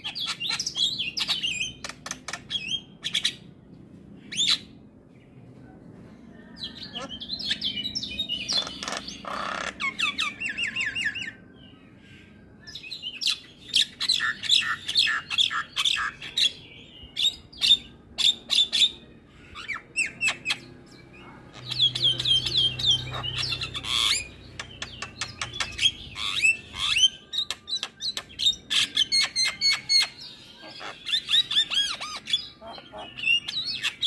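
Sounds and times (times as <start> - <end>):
myna bird singing: 0.0 - 34.0.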